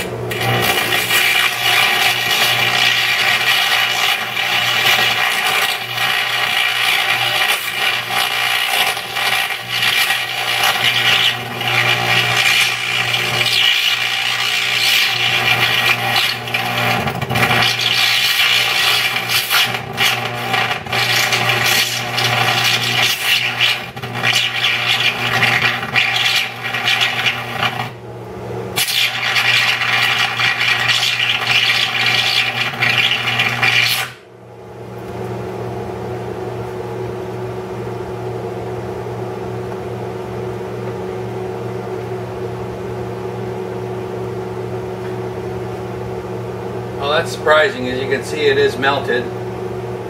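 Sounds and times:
carbon arc crackling and hissing: 0.0 - 28.0, 28.8 - 34.2, 47.0 - 49.3
welder humming: 0.0 - 50.0.

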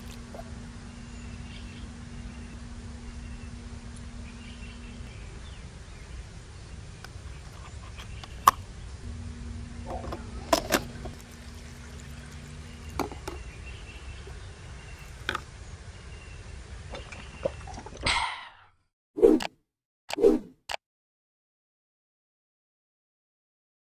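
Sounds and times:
low outdoor rumble: 0.0 - 18.1.

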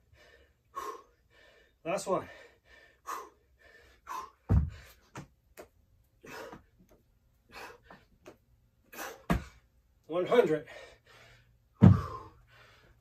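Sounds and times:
man breathing hard: 0.0 - 5.2, 6.2 - 6.8, 7.4 - 8.2, 10.6 - 13.0
dumbbells thudding on floor: 4.4 - 5.3, 9.2 - 9.6, 11.8 - 12.3.

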